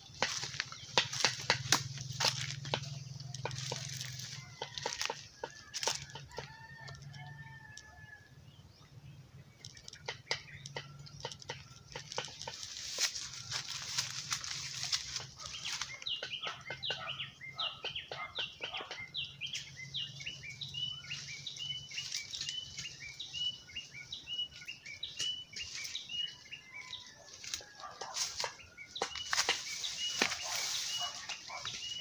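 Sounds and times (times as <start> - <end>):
leaves and branches rustling: 0.0 - 7.5, 10.6 - 16.2, 20.3 - 32.0.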